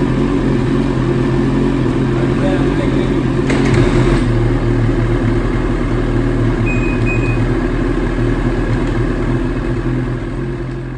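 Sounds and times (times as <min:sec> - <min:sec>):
snowmobile engine idling: 0:00.0 - 0:10.9
short high beeps: 0:06.6 - 0:07.5.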